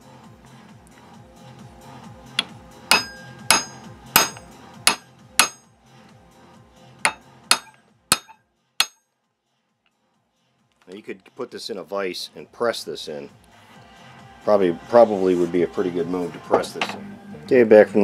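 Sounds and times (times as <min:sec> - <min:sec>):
faint background music: 0:00.0 - 0:18.0
hammer tapping metal socket: 0:02.4 - 0:05.7, 0:07.1 - 0:09.0.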